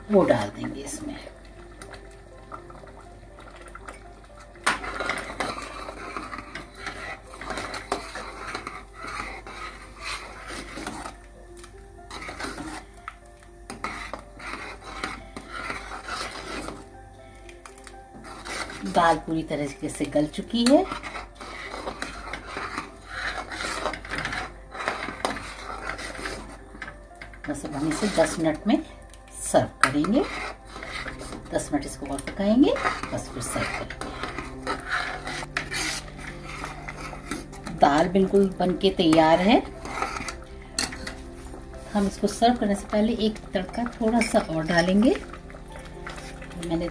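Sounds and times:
ladle scraping metal pot: 0.1 - 46.9.

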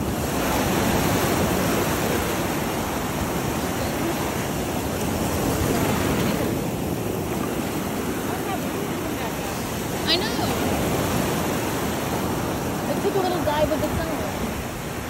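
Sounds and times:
ocean surf washing ashore: 0.0 - 15.0
wind buffeting microphone: 0.0 - 15.0.

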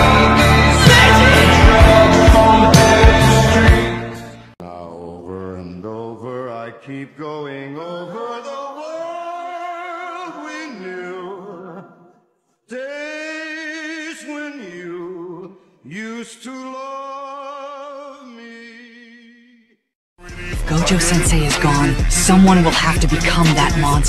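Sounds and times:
person singing with vibrato: 0.0 - 12.1, 20.2 - 24.0.

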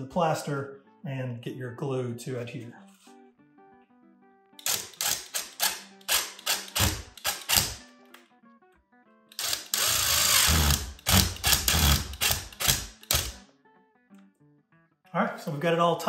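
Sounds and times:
cordless drill driving screws: 4.6 - 7.8, 9.3 - 13.4.

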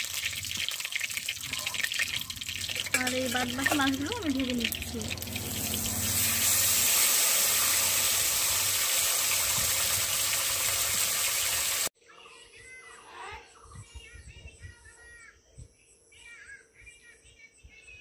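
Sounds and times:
fish frying in hot oil: 0.0 - 11.9
birds chirping: 0.5 - 6.5.

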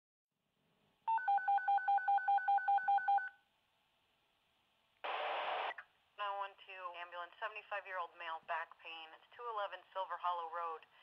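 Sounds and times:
telephone keypad tones: 1.1 - 3.3
radio static burst: 5.0 - 5.8.

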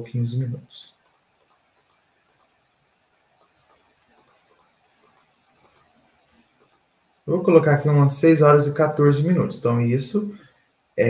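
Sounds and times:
computer mouse clicks: 0.9 - 2.6, 3.3 - 6.9.

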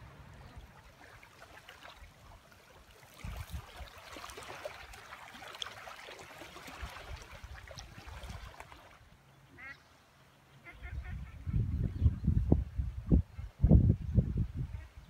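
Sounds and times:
small waves lapping: 0.0 - 10.6
wind buffeting microphone: 3.2 - 3.8, 10.8 - 15.0.

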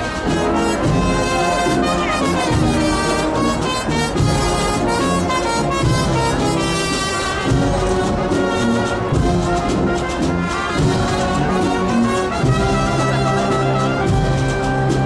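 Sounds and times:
brass band march: 0.0 - 15.0
drum strokes: 0.0 - 15.0.

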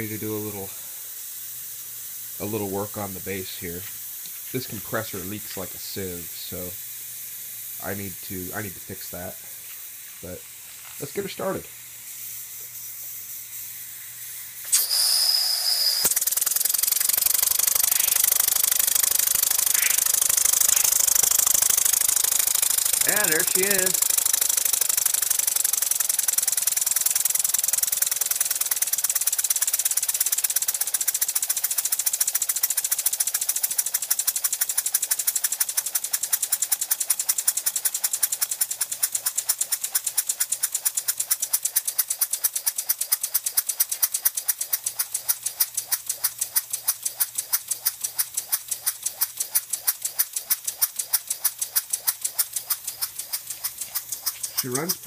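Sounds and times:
hiss of air: 0.0 - 55.0
small steam engine puffing: 0.0 - 55.0.

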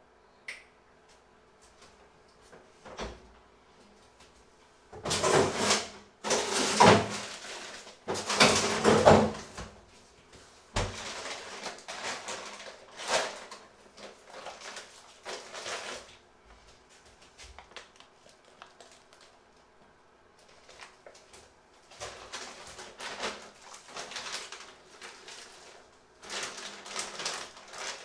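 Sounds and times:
freezer drawer scraping: 5.0 - 9.7, 10.8 - 16.1, 21.9 - 28.0
plastic bag crinkling: 10.8 - 16.2, 17.4 - 19.7, 20.4 - 28.0.

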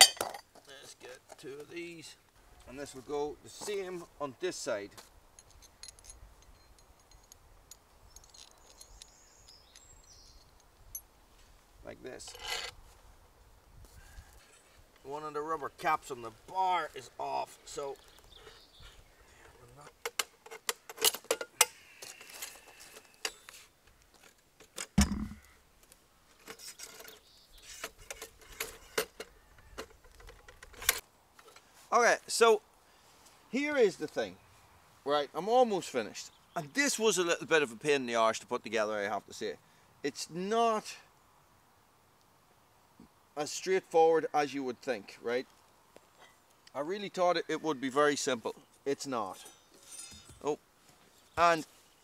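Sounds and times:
metal parts clinking and rattling: 5.4 - 11.0
heavy dull thump: 25.0 - 25.4.

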